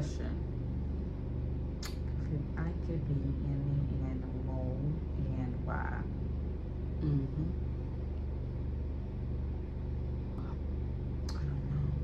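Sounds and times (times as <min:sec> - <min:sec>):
low room hum: 0:00.0 - 0:12.0
person murmuring hmm: 0:07.0 - 0:07.5.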